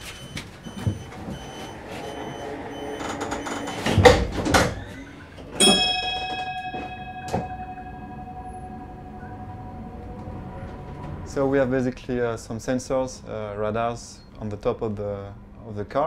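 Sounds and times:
short high warning beeps: 0:00.0 - 0:04.0
doors sliding shut: 0:00.0 - 0:06.0
high multi-tone sound: 0:05.0 - 0:11.8.

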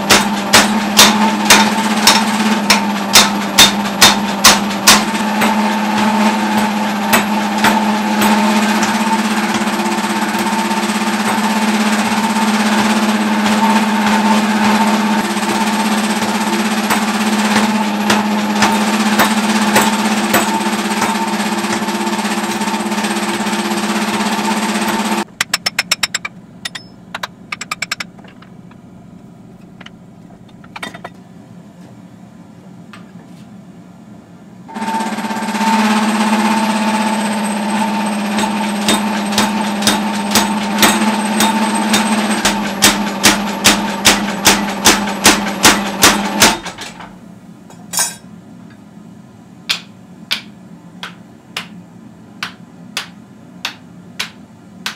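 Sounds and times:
power hammer humming: 0:00.0 - 0:31.2, 0:34.7 - 0:47.0.

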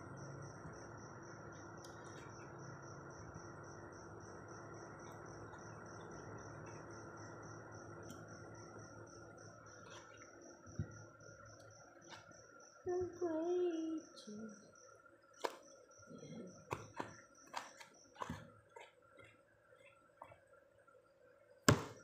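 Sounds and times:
cricket chirping: 0:00.0 - 0:22.0
low steady hum: 0:00.0 - 0:22.0
knock: 0:21.7 - 0:22.0.

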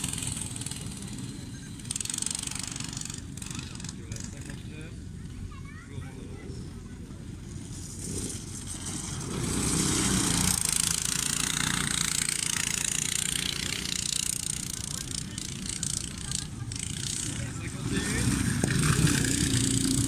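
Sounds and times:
small engine running hard: 0:00.0 - 0:20.0.

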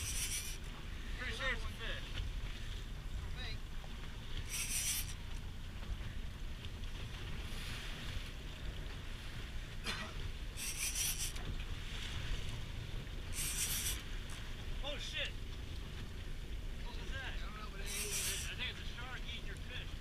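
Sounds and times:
fishing reel drag buzzing: 0:00.0 - 0:00.7, 0:04.4 - 0:05.2, 0:10.6 - 0:11.4, 0:13.3 - 0:14.1, 0:17.8 - 0:18.6
wind and boat rumble: 0:00.0 - 0:20.0.

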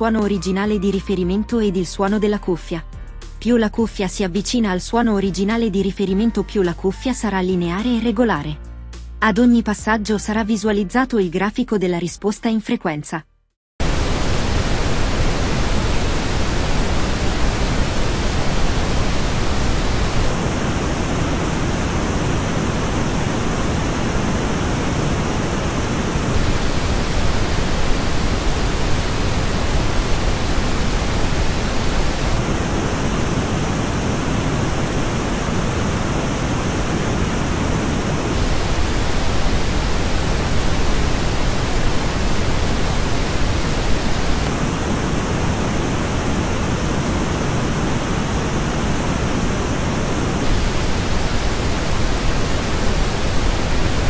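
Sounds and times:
pink noise test signal: 0:13.8 - 0:54.0.

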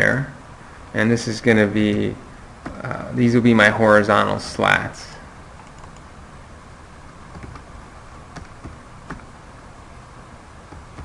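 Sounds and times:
faint steady hiss: 0:00.0 - 0:11.0
computer keyboard keystrokes: 0:05.6 - 0:06.1, 0:07.3 - 0:07.7, 0:08.4 - 0:09.3.

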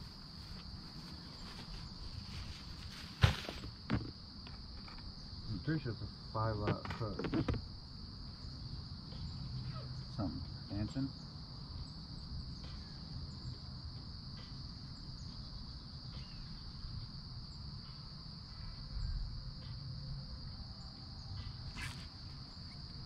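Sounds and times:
insect trill: 0:00.0 - 0:23.0
dull bump: 0:03.0 - 0:04.1.

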